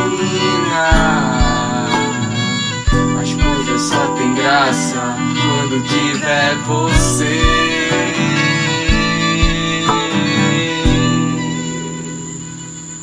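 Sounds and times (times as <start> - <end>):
person singing: 0.0 - 12.6
acoustic guitars strumming: 0.0 - 13.0
soft low thumps: 0.9 - 3.9, 6.9 - 8.0, 8.8 - 10.2, 10.9 - 11.4.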